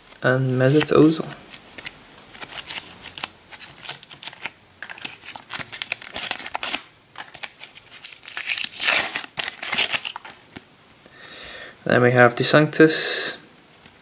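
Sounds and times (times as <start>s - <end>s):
wrapper tearing and crinkling: 1.5s - 10.6s.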